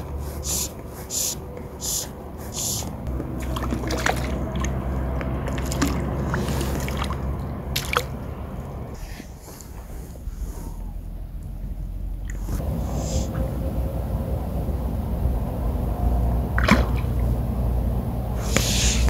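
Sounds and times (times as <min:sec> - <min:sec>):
fish splashing in water: 0:03.1 - 0:08.9, 0:16.5 - 0:17.4
water sloshing and dripping: 0:03.1 - 0:09.0, 0:12.2 - 0:18.7
fly line swishing: 0:18.4 - 0:19.0.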